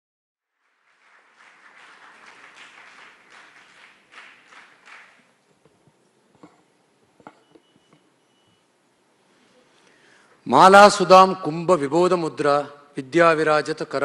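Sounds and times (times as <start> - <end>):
audience applause: 0.5 - 5.4.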